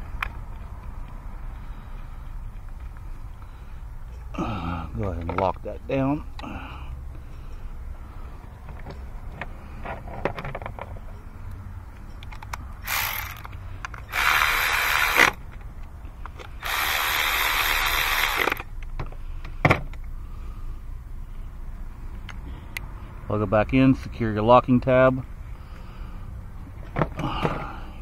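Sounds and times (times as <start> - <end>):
cordless electric ratchet running: 12.8 - 15.4, 16.5 - 18.7.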